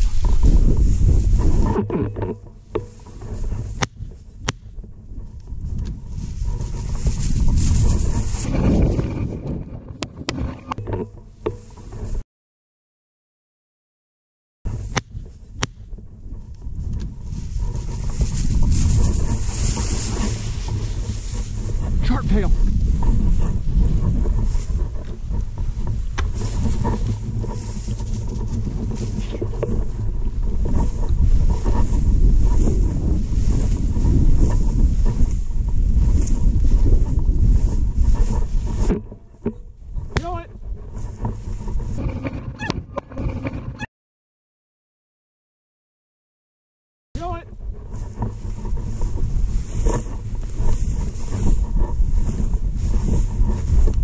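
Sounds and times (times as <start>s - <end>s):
footsteps through dry grass: 0.0s - 1.7s, 2.4s - 10.6s, 14.7s - 42.7s, 47.5s - 54.0s
wind rumble on microphone: 0.0s - 12.2s, 14.7s - 43.9s, 47.2s - 54.0s.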